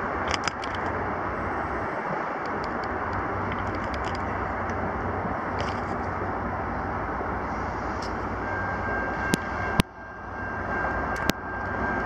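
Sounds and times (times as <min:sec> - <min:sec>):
distant diesel train rumble: 0:00.0 - 0:12.0
open-air ambience: 0:00.0 - 0:12.0
sharp handling clicks: 0:00.3 - 0:01.0.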